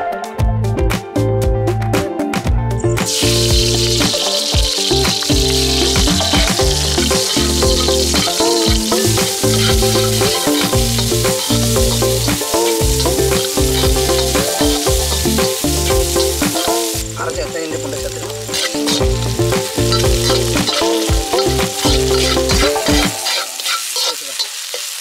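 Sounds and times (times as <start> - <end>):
background music with bass line: 0.0 - 23.2
food sizzling in hot oil: 3.0 - 25.0
metal spatula scraping a pan: 5.8 - 16.9, 18.5 - 19.2, 19.9 - 25.0.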